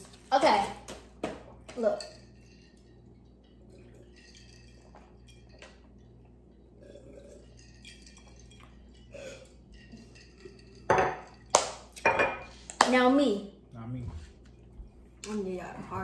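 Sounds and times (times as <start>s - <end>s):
glass clinks and knocks: 9.9s - 12.5s.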